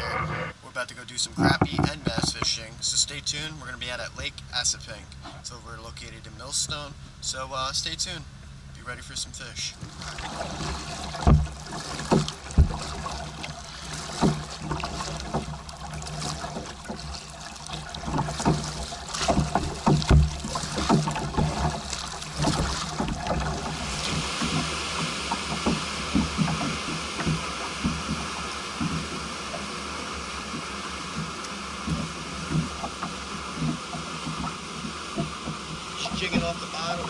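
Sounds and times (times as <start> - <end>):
paddle splashing water: 9.0 - 37.0
knocks against plastic hull: 9.8 - 29.2, 30.6 - 36.6.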